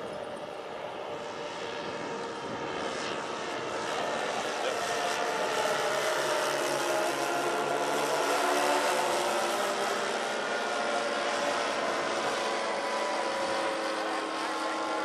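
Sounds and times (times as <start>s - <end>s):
model airplane engines droning: 0.0s - 15.0s.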